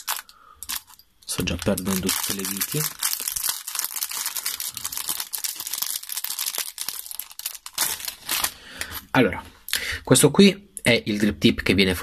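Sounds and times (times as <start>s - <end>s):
plastic bag crinkling: 0.0s - 8.6s.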